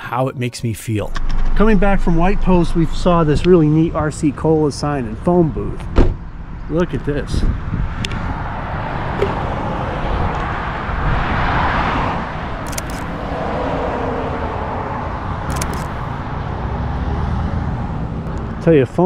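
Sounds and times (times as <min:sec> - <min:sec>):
roadside traffic rumble: 0:01.1 - 0:19.0
vehicle passing: 0:01.3 - 0:19.0
short clicks: 0:12.6 - 0:13.1, 0:15.5 - 0:16.1.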